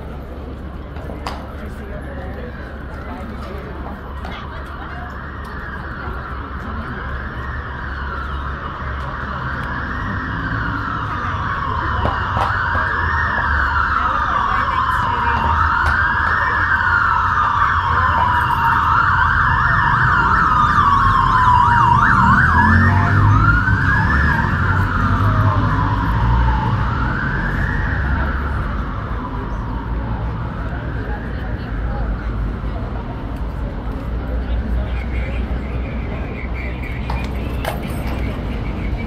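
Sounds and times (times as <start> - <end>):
emergency siren wailing and yelping: 3.9 - 32.6.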